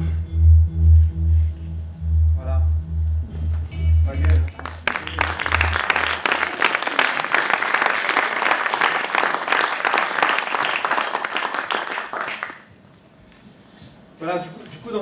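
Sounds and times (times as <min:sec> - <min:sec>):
low music beat: 0:00.0 - 0:06.5
audience applauding: 0:04.2 - 0:12.8.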